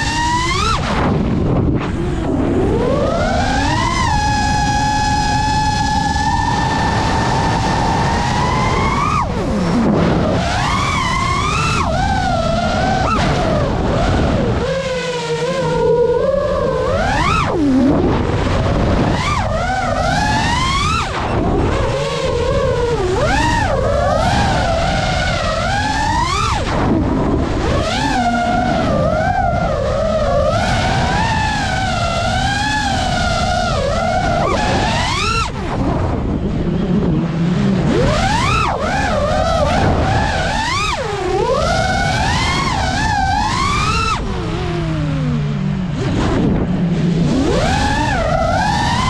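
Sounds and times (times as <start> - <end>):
drone motors whining: 0.0 - 49.0
low rushing noise: 0.0 - 49.0.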